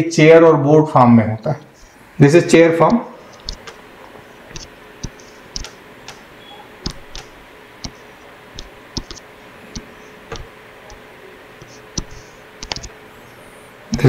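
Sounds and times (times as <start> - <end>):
stylus clicking on tablet: 2.8 - 3.8, 4.5 - 11.0, 11.6 - 13.0.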